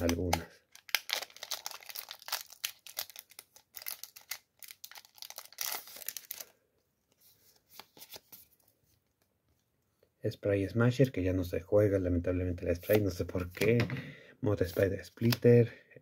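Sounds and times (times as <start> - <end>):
cards rustling: 0.0 - 6.5, 7.1 - 9.1
foil wrapper crinkling and tearing: 0.0 - 6.6.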